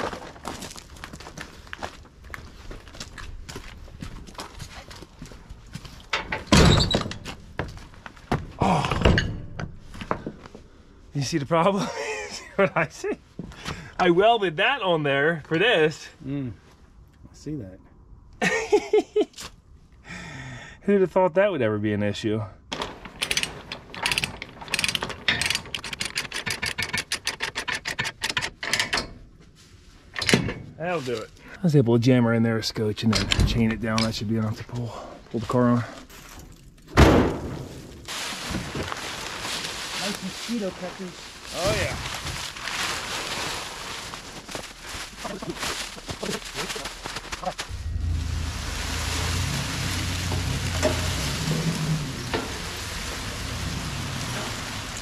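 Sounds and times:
metal winch clanks: 22.8 - 29.2
heavy metal clunk: 50.2 - 52.8.

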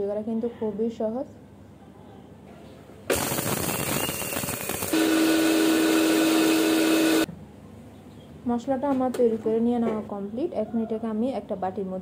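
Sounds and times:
blender grinding spices: 3.1 - 7.3.

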